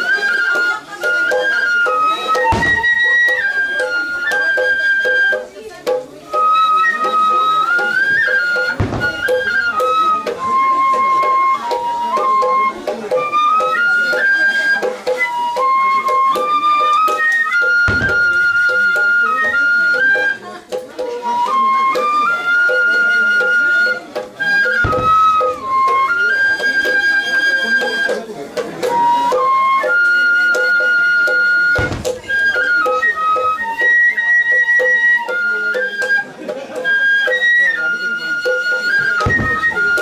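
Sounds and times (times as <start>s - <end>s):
bamboo flute melody: 0.0s - 40.0s
deep drum beats: 2.4s - 3.5s, 8.6s - 10.6s, 17.8s - 19.2s, 24.7s - 26.2s, 31.8s - 33.3s, 39.2s - 40.0s.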